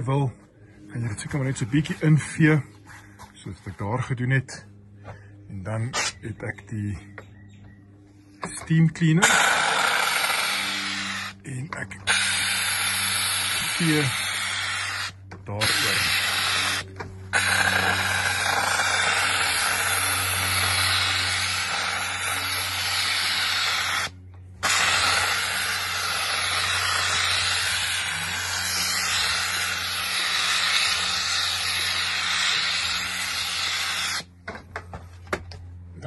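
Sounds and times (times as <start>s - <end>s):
low hum: 0.0s - 36.0s
steam cleaner hissing: 9.2s - 11.4s, 12.1s - 34.3s.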